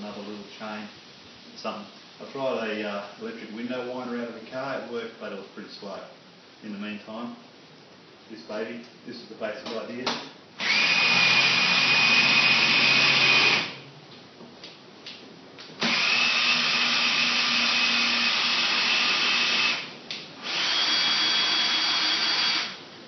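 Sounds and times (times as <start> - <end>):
electric drill spinning: 10.6 - 13.8, 15.8 - 22.9.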